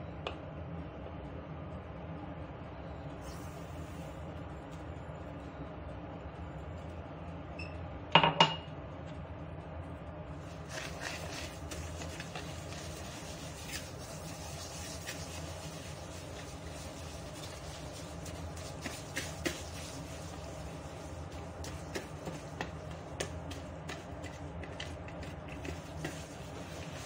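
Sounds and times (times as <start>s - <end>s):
whisk beating in plastic bowl: 10.4s - 27.0s.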